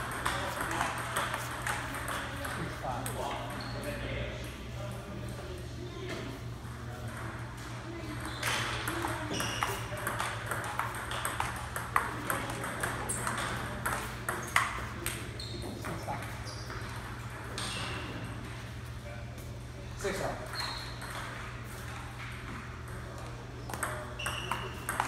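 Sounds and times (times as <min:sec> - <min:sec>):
ping pong ball clicking: 0:00.0 - 0:03.2, 0:08.4 - 0:15.2, 0:23.7 - 0:25.0.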